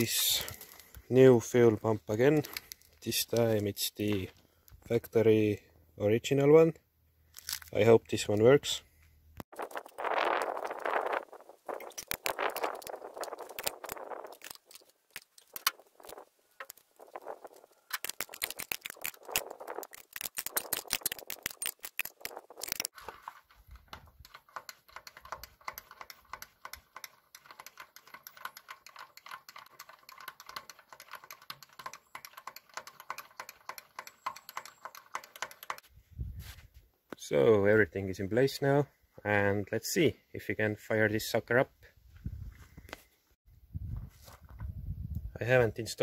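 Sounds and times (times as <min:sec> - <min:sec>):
hand primer pump clicking: 0:17.8 - 0:22.9, 0:24.2 - 0:35.9
spanner clicking on metal: 0:24.2 - 0:35.8.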